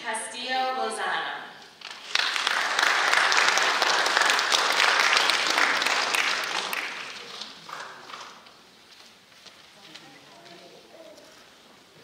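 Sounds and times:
audience applauding: 0:01.8 - 0:08.5.

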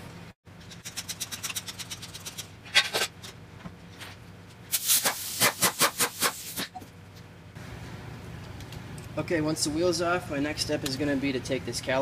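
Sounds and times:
air hissing: 0:04.7 - 0:06.7
pneumatic impact wrench hammering: 0:04.7 - 0:06.8.

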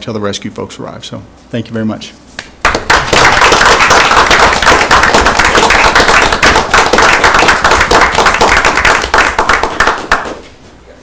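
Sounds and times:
small group applauding: 0:02.6 - 0:10.6.

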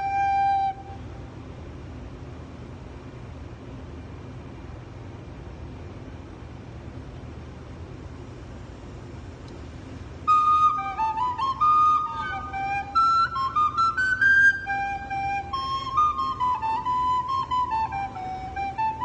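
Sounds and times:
recorder playing tune: 0:00.0 - 0:01.0, 0:10.3 - 0:19.0
low steady hum: 0:00.0 - 0:19.0.

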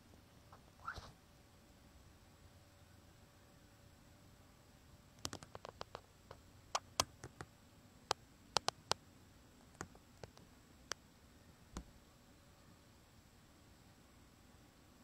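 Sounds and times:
faint hiss: 0:00.0 - 0:15.0
light clicks and ticks: 0:05.2 - 0:07.5, 0:08.1 - 0:09.0.

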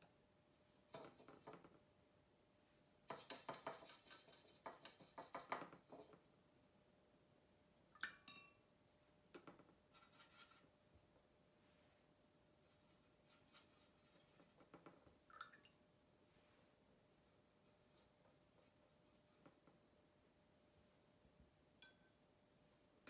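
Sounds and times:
painting tools clinking on glass: 0:21.8 - 0:22.2.

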